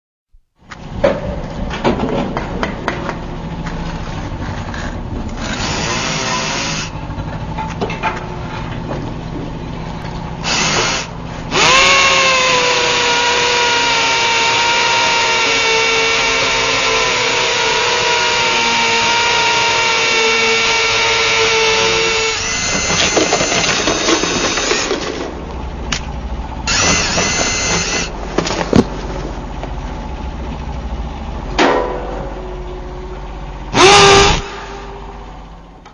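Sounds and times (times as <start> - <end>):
power drill motor whining: 5.4 - 7.0, 10.4 - 25.2, 26.6 - 28.1, 33.7 - 35.0
clattering and scraping: 22.6 - 26.1.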